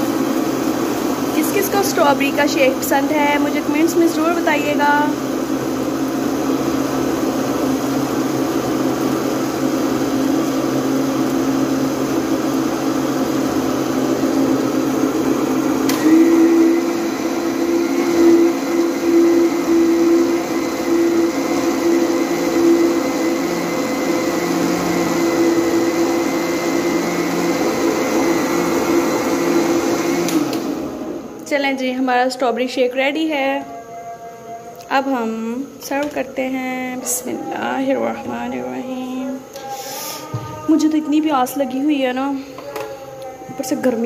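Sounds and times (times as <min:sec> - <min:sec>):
electric blender running: 0:00.0 - 0:31.5.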